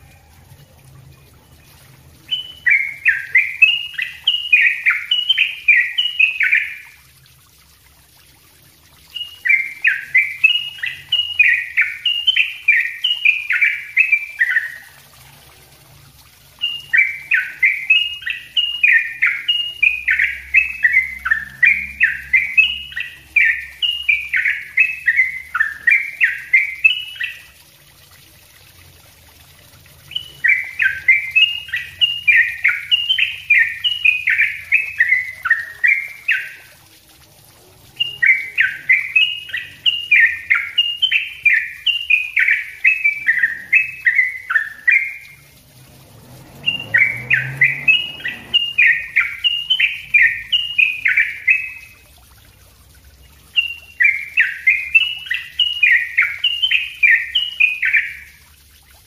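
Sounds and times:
bird rapid chirping song: 1.1 - 7.0, 9.1 - 15.0, 16.6 - 27.6, 30.0 - 36.7, 37.9 - 45.5, 46.6 - 52.0, 53.4 - 58.4.

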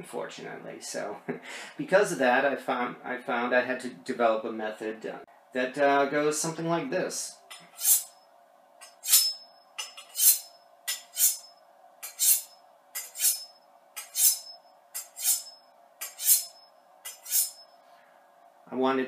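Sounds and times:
knife scraping on sharpening steel: 7.5 - 8.2, 8.8 - 17.7.

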